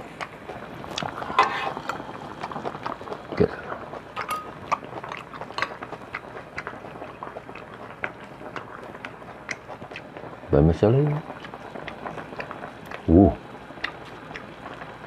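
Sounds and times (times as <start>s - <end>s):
utensils clinking over a pot: 4.2s - 4.6s.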